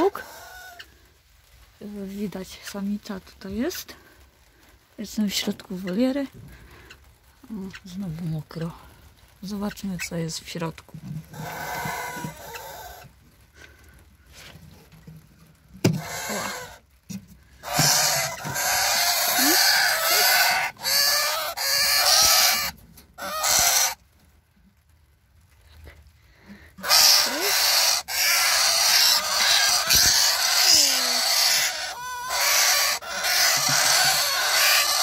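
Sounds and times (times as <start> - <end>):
nestlings harsh raspy calls: 0.0 - 0.9, 11.3 - 13.1, 16.0 - 16.8, 17.6 - 24.0, 26.8 - 35.0.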